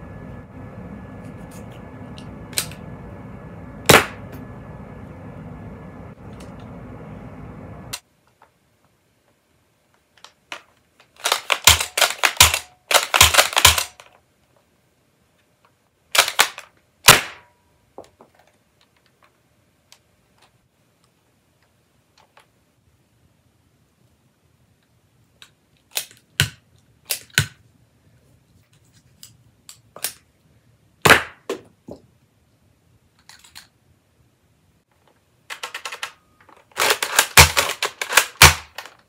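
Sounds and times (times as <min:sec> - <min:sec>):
steady low hum: 0:00.0 - 0:08.0
toy pistol plastic clicks: 0:11.2 - 0:14.1, 0:25.4 - 0:26.3.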